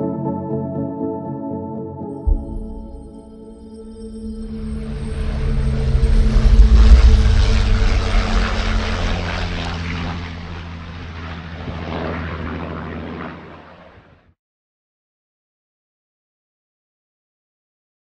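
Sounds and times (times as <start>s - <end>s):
propeller aircraft flying past: 3.8s - 14.3s.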